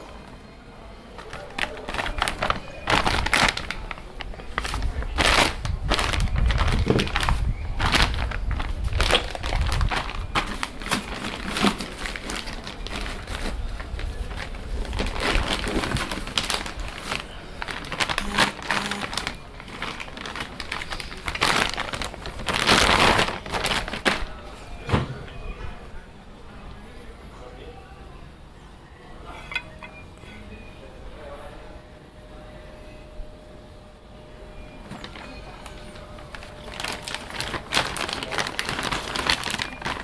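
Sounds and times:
plastic wrapping crinkling: 0:01.1 - 0:24.9, 0:34.7 - 0:40.0.

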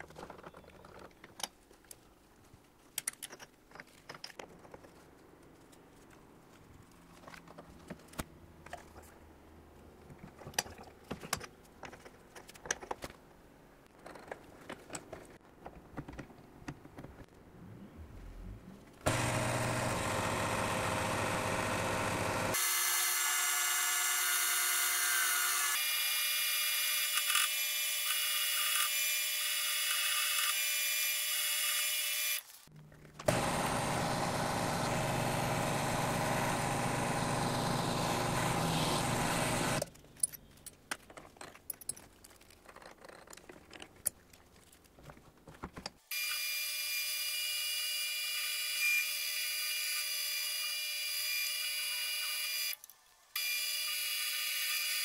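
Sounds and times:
drill press whining: 0:19.1 - 0:23.4, 0:33.2 - 0:39.8
drill bit cutting steel: 0:19.1 - 0:32.4, 0:33.3 - 0:39.8, 0:53.4 - 0:55.0.

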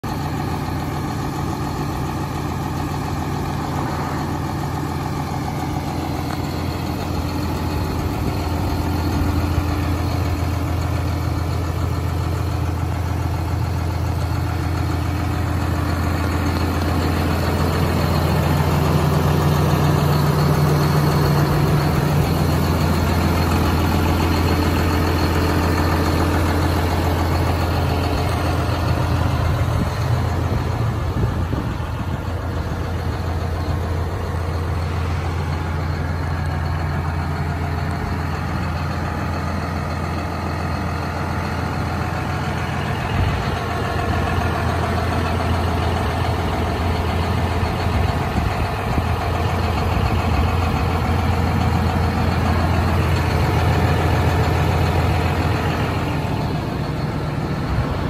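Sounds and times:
tractor diesel engine idling: 0:00.0 - 0:58.0.

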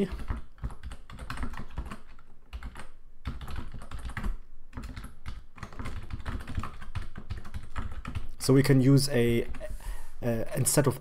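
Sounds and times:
typing on computer keyboard: 0:00.0 - 0:08.4.

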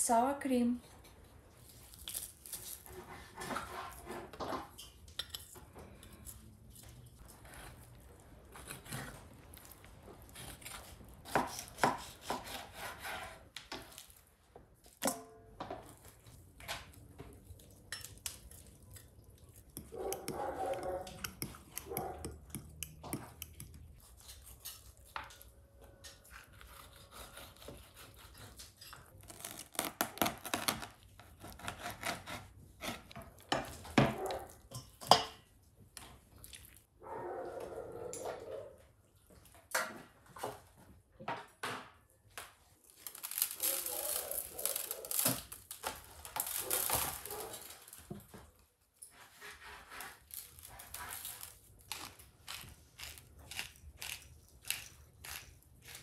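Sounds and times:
knife cutting meat on board: 0:10.4 - 0:13.4.

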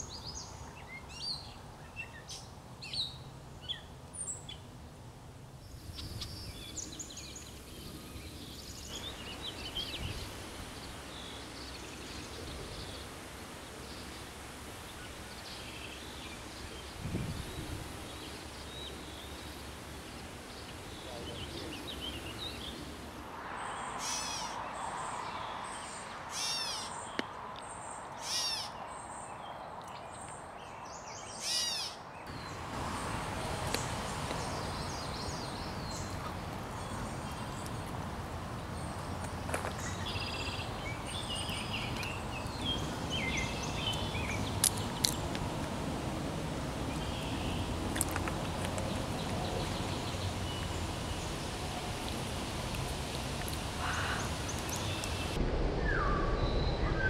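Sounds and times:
outdoor background hiss: 0:00.0 - 0:57.0
birds chirping and calling: 0:23.9 - 0:29.3, 0:30.1 - 0:37.9, 0:38.8 - 0:45.3, 0:53.2 - 0:55.4.

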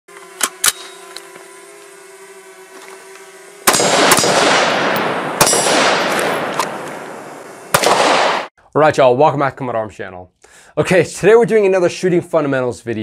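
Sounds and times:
loud sudden bangs: 0:03.7 - 0:08.5.

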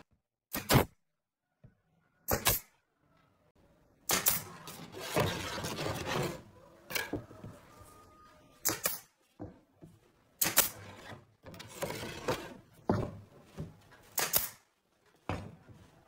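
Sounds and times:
nail gun snaps: 0:04.1 - 0:04.5, 0:10.4 - 0:10.8, 0:14.1 - 0:14.6.

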